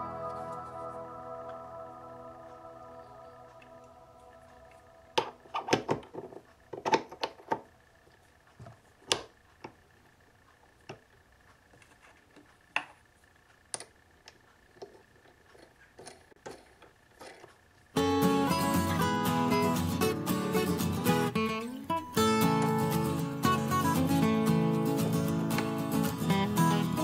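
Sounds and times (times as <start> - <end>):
faint high tone: 0.0 - 5.5.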